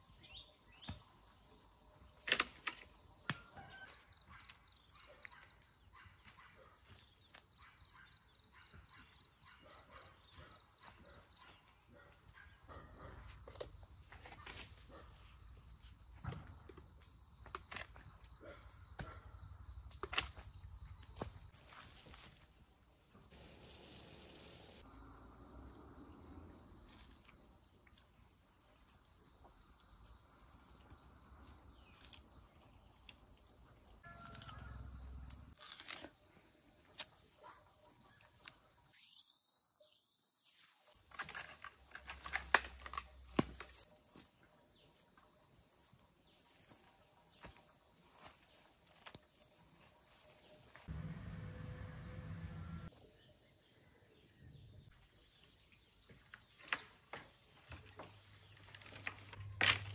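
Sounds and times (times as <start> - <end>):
faint outdoor noise: 0.0 - 59.9
high-pitched insect drone: 23.3 - 25.4.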